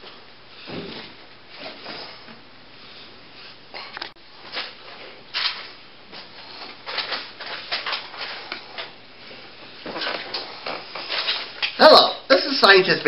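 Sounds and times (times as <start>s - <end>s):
puppets and props rustling: 4.0s - 13.0s.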